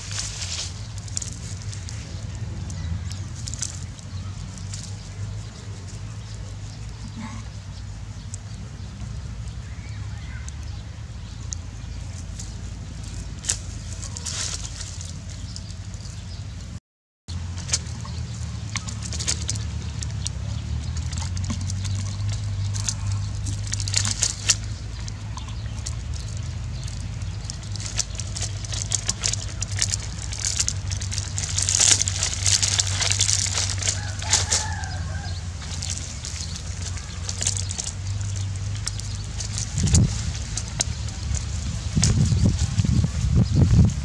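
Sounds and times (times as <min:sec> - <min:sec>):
dry palm fronds crackling: 0:00.0 - 0:44.0
rooster crowing: 0:33.9 - 0:35.8.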